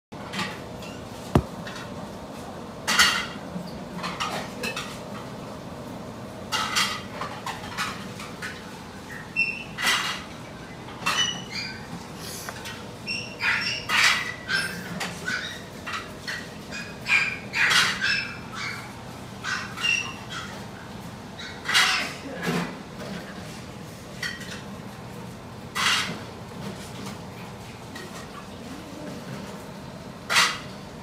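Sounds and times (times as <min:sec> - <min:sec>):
sharp knock: 0:01.4 - 0:01.6
puppy squeaks: 0:13.1 - 0:15.7, 0:16.7 - 0:20.6.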